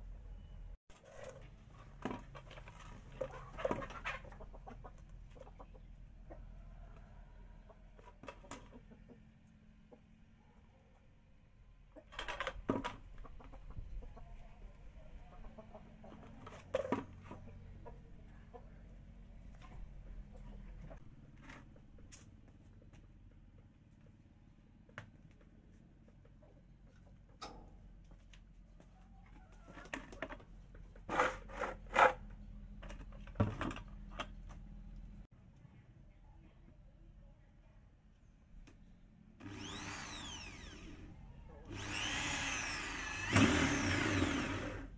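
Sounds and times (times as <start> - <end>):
chickens clucking: 1.0 - 10.2, 12.9 - 21.0, 25.8 - 27.4.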